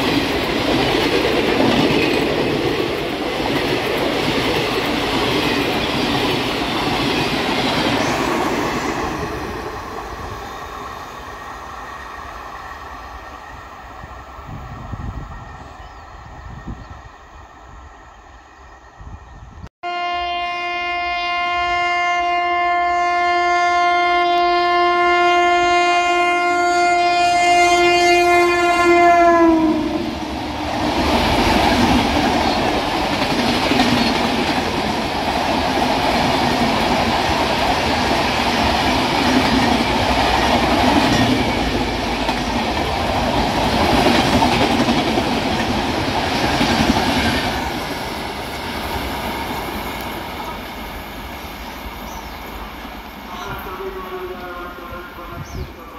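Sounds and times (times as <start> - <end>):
train coaches rushing past: 0.0 - 19.2, 28.2 - 55.9
train horn: 19.8 - 30.3, 53.3 - 55.6.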